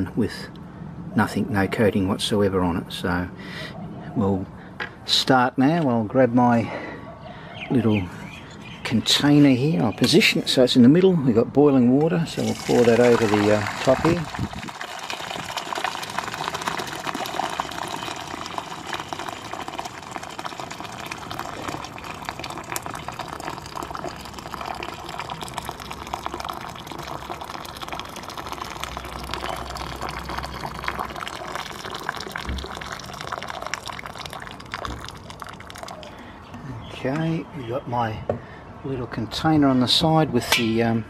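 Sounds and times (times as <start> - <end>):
water pouring into metal bowl: 12.3 - 36.2.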